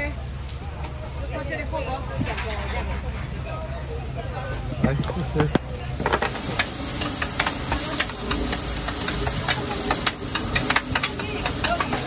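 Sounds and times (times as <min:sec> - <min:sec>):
food sizzling on griddle: 0:05.8 - 0:12.0
metal spatula clinking and scraping: 0:06.9 - 0:12.0.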